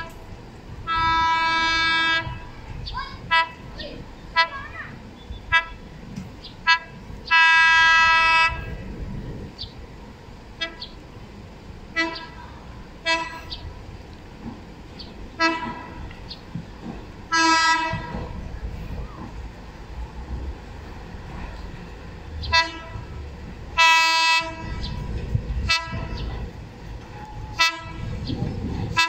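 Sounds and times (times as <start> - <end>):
low train rumble: 0.0 - 29.0
train horn tooting: 0.8 - 2.6, 3.2 - 6.0, 6.6 - 8.8, 10.6 - 11.0, 11.9 - 12.4, 13.0 - 13.6, 15.4 - 16.2, 17.3 - 18.3, 22.4 - 29.0.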